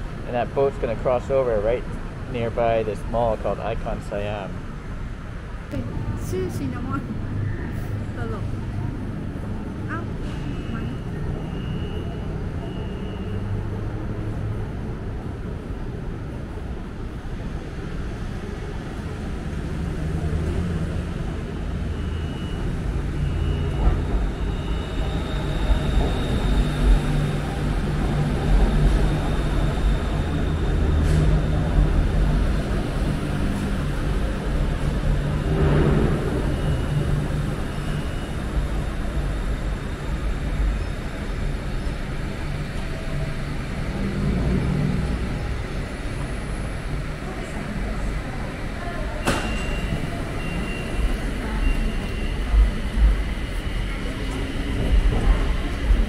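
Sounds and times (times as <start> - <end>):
train rumbling into station: 0.0 - 56.0
thin high whine: 22.0 - 56.0
short high beeps: 49.2 - 52.9.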